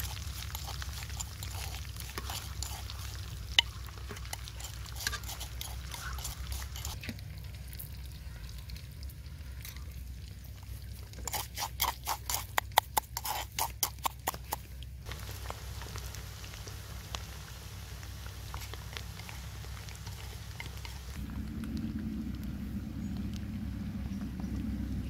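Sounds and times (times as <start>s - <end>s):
metal spoon scraping in mortar: 0.0s - 7.0s, 11.2s - 14.6s
low steady rumble: 0.0s - 11.6s, 14.1s - 25.0s
hot oil crackling: 0.0s - 23.7s.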